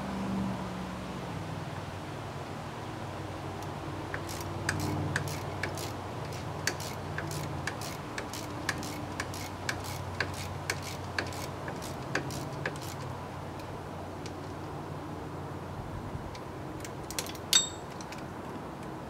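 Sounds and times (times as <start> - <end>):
ratchet wrench clicking: 4.1 - 13.7.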